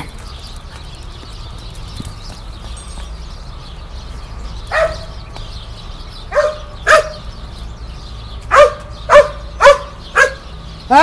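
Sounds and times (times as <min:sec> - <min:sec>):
dog barking sharply: 0:08.5 - 0:10.4.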